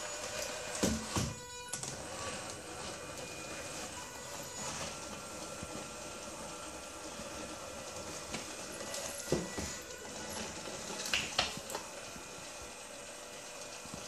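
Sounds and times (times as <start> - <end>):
small drive motors whirring: 0.0 - 14.0.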